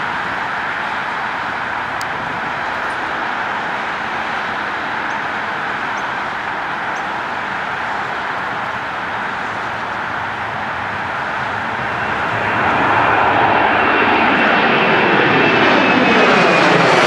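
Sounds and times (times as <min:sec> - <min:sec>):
jet engines at takeoff thrust: 0:00.0 - 0:17.0.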